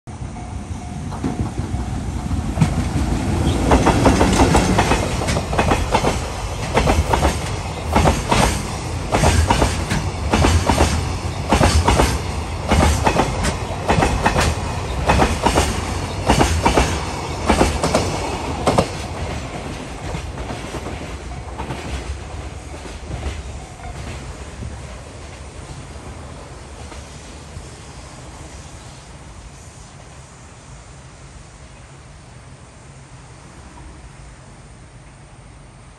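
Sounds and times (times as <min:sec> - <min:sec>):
electric locomotive passing: 0:00.1 - 0:35.9
train wheels clattering: 0:00.8 - 0:25.8.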